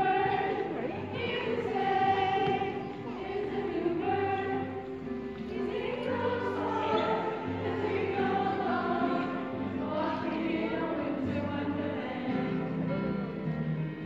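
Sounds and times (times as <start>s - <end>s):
group of voices singing: 0.0s - 13.3s.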